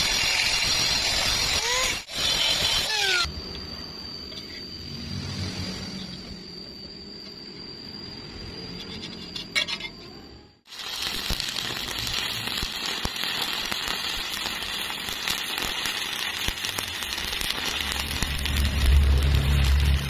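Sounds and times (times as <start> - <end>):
welding arc crackling: 0.0 - 3.3, 10.7 - 20.0
low hum: 3.3 - 10.6, 17.2 - 20.0.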